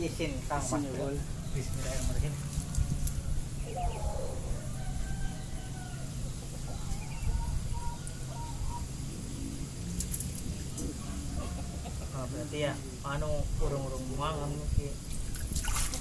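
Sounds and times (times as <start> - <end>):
rooster crowing: 1.3 - 9.0, 11.0 - 12.2.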